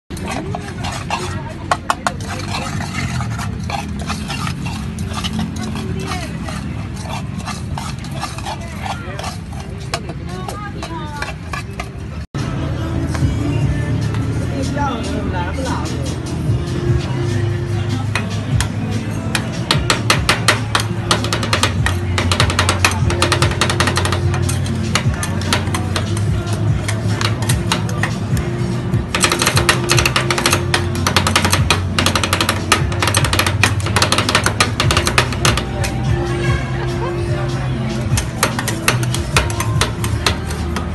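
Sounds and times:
voices: 0.1s - 20.0s, 35.4s - 40.9s
street noise: 0.1s - 40.9s
metal spatulas tapping on steel: 18.1s - 28.5s, 29.1s - 36.0s, 38.1s - 40.9s.

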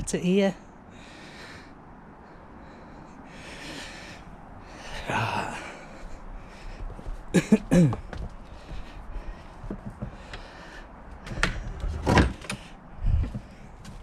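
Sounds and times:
person breathing out heavily: 0.8s - 7.2s, 8.0s - 11.1s
wooden gate creaking: 11.2s - 12.8s.

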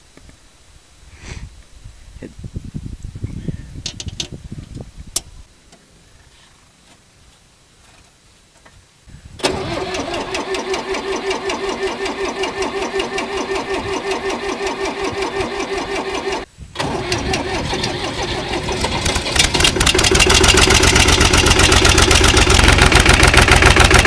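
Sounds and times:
diesel tractor engine running: 9.4s - 24.0s.

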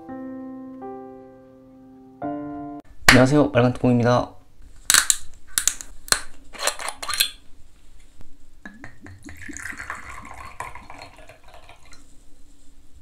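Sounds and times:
bottle cap cracking open: 4.9s - 7.4s
liquid pouring into glass: 8.7s - 12.1s.

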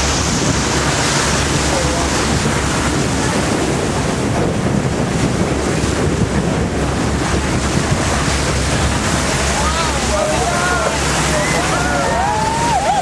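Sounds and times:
water rushing along boat bow: 0.0s - 13.0s
wind buffeting microphone: 0.0s - 13.0s.

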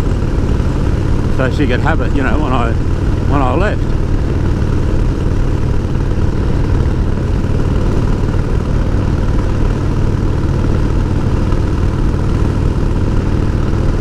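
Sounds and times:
motorcycle engine running: 0.0s - 14.0s
road noise: 0.0s - 14.0s.

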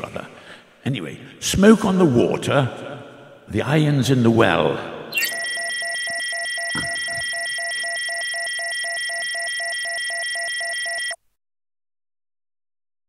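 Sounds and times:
pulsing electronic tone: 5.2s - 11.2s.

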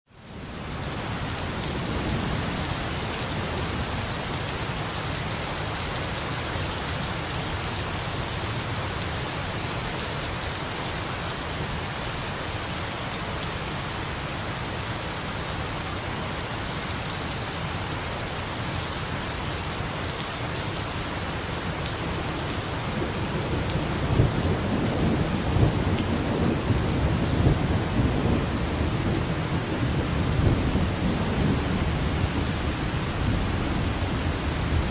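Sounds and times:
heavy rain falling: 0.1s - 34.9s
low thunder rumbles: 22.8s - 34.9s.

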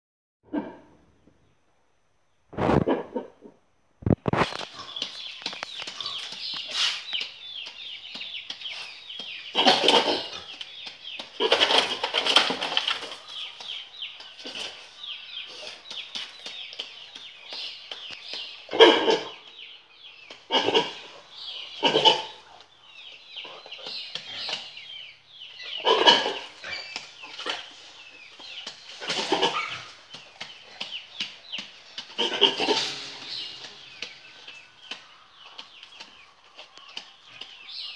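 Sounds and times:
high chirping: 29.3s - 37.9s.

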